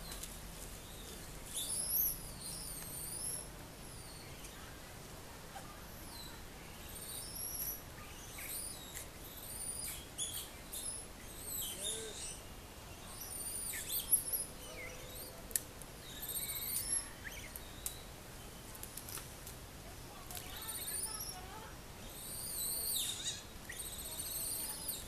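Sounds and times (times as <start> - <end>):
small animals chirping: 0.9 - 4.7, 5.6 - 12.4, 13.0 - 18.1, 20.3 - 25.0.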